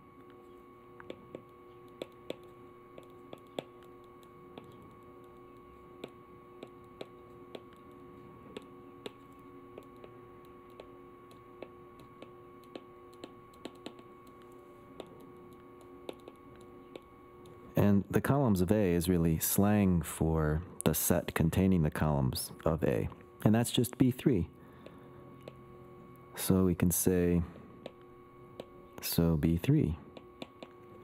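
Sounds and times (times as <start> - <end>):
faint steady hum: 0.0 - 31.0
pen tapping on paper: 1.0 - 7.9, 8.5 - 15.2, 15.8 - 17.1, 30.2 - 30.8.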